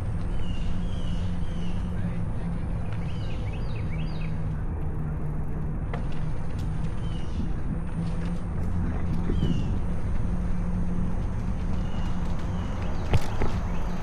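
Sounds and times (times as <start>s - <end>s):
riding noise: 0.0s - 14.0s
wind rumble: 0.0s - 14.0s
birds chirping: 0.2s - 5.3s, 6.7s - 7.6s, 9.0s - 14.0s.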